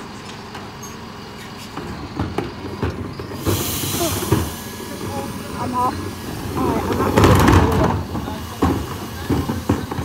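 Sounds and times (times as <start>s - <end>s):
bin lorry running noise: 0.0s - 10.0s
wheelie bins clattering: 1.6s - 10.0s
loud hiss: 3.3s - 10.0s.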